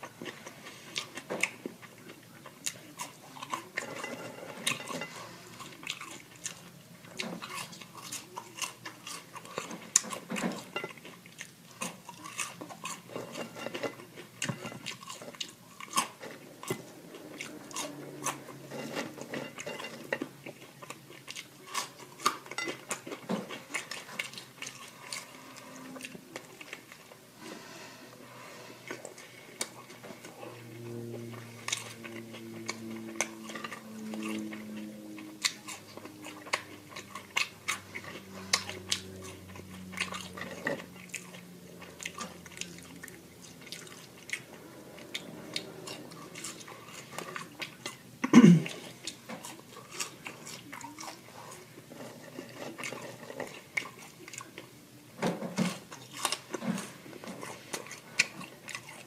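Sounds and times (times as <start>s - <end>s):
chewing and biting food: 0.0s - 27.2s, 28.8s - 59.0s.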